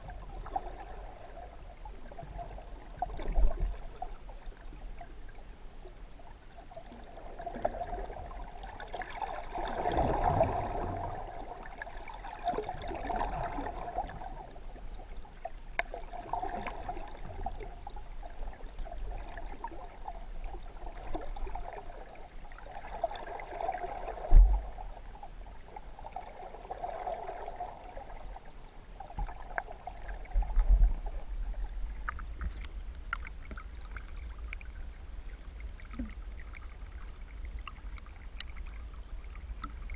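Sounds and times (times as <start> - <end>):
muffled water sloshing underwater: 0.0 - 39.9
low thump: 24.3 - 24.6.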